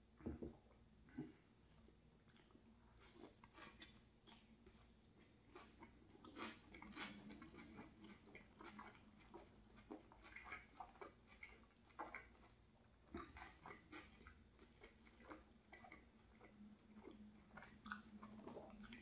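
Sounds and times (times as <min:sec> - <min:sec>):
mouth chewing food: 0:00.7 - 0:19.0.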